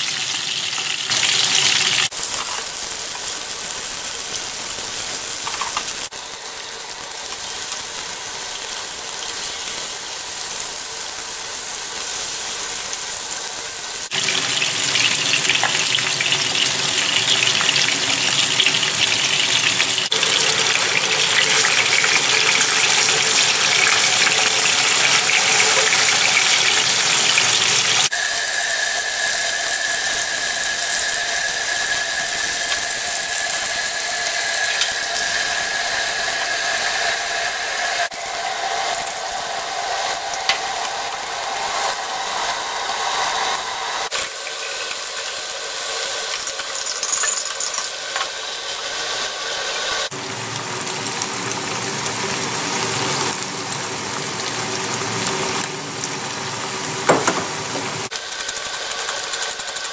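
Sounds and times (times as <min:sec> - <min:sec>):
oil sizzling in frying pans: 0:00.0 - 0:59.9.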